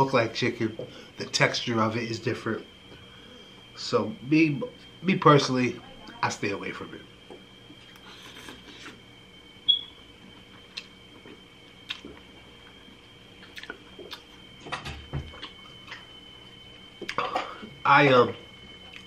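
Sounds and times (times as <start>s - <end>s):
faint high-pitched whine: 0.0s - 19.0s
person chewing noodles: 10.3s - 11.0s, 11.8s - 12.8s, 13.4s - 14.4s, 15.3s - 16.0s.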